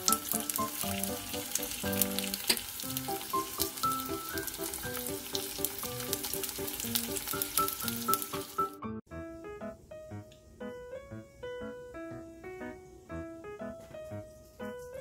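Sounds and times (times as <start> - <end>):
dumplings sizzling in oil: 0.0 - 8.8
background music melody: 0.0 - 15.0.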